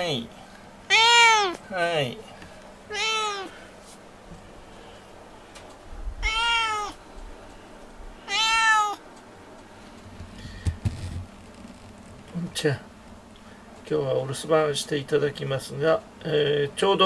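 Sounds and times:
cat meowing: 0.9s - 1.6s, 2.9s - 3.6s, 6.2s - 7.0s, 8.2s - 9.0s.

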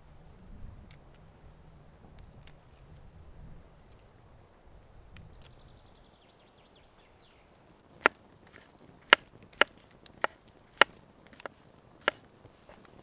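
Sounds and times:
wood chopping strikes: 8.0s - 12.4s.

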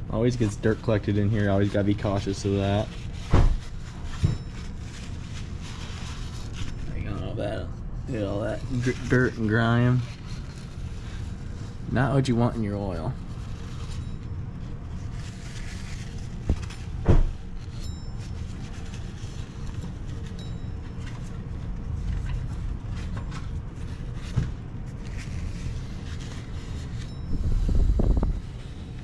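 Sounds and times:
steady low rumble: 0.0s - 29.0s
cloth wiping inside housing: 23.6s - 29.0s.

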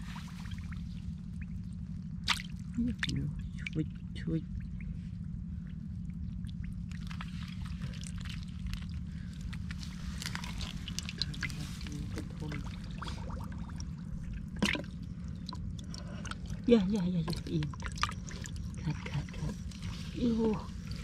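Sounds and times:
low rumble: 0.0s - 21.0s
fish splashing into tank: 2.2s - 3.2s
water splashing and dripping: 2.2s - 3.2s.

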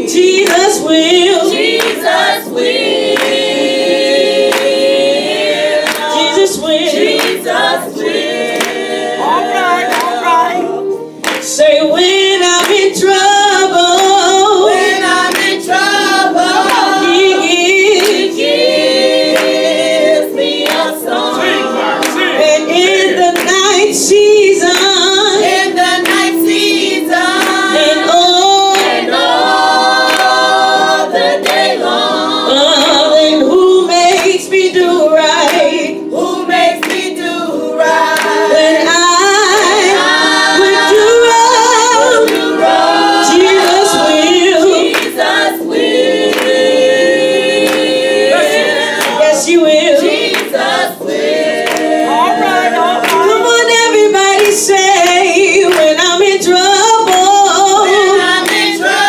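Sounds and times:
woman leading singing into microphone: 0.0s - 3.6s, 4.4s - 59.0s
gospel group call-and-response singing: 0.0s - 59.0s
hands clapping: 0.4s - 0.8s, 1.5s - 3.8s, 4.4s - 6.3s, 7.0s - 7.8s, 8.5s - 10.6s, 11.2s - 11.6s, 12.6s - 12.9s, 15.2s - 17.0s, 18.0s - 22.5s, 23.3s - 23.7s, 24.7s - 28.0s, 28.7s - 29.1s, 30.0s - 31.8s, 34.1s - 34.4s, 35.4s - 35.8s, 36.5s - 37.2s, 38.1s - 38.4s, 42.2s - 42.6s, 44.9s - 45.5s, 46.3s - 46.7s, 47.6s - 49.4s, 50.1s - 50.8s, 51.6s - 53.5s, 54.3s - 56.0s, 57.1s - 57.3s, 58.4s - 58.8s.

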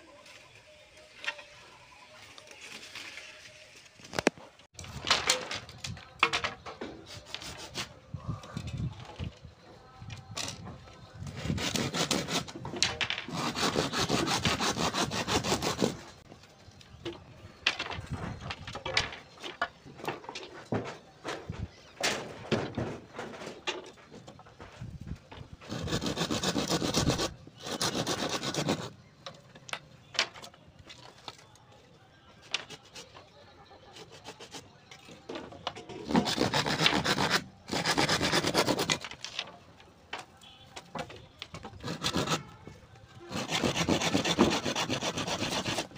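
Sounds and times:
bamboo scraping and tapping: 2.2s - 31.6s, 32.4s - 33.3s, 33.9s - 45.9s
hand saw cutting bamboo: 7.2s - 7.9s, 11.4s - 12.6s, 13.3s - 16.1s, 25.7s - 28.9s, 36.0s - 39.1s, 41.8s - 42.6s, 43.2s - 45.9s.

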